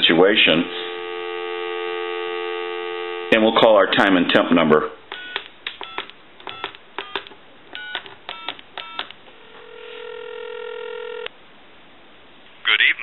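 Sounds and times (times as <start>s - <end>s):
steady ringback tone: 0.4s - 3.4s, 5.2s - 11.3s
keypad key clicks: 5.1s - 9.2s
touch-tone dialing beeps: 5.1s - 11.3s.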